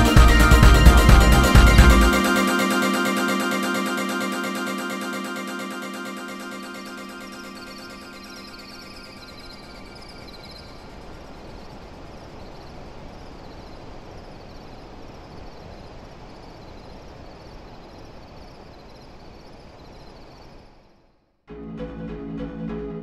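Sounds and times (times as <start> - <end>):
hiss-like ambient texture: 0.0 - 20.9
faint high chirp: 0.9 - 12.8.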